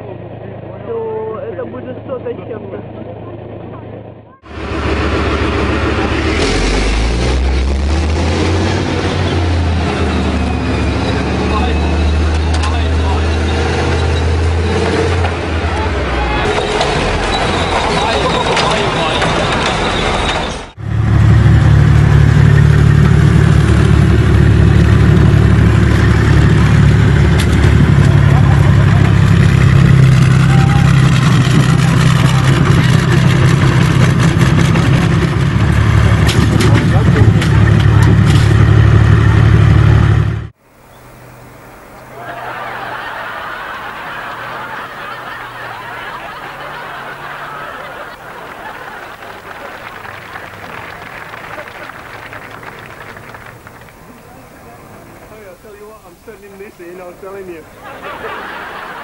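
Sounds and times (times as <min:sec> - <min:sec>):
tracked vehicle diesel engine droning: 0:00.0 - 0:59.0
noisy din of crushing cars: 0:04.5 - 0:20.8, 0:21.6 - 0:40.4.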